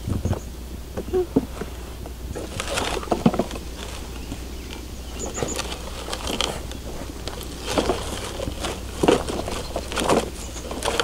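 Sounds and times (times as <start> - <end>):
steady low rumble: 0.0 - 11.0
plastic toy digger clatter: 2.4 - 11.0.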